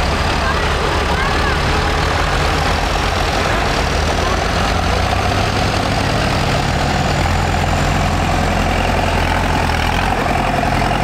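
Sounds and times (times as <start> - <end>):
tractors driving past: 0.0 - 11.0.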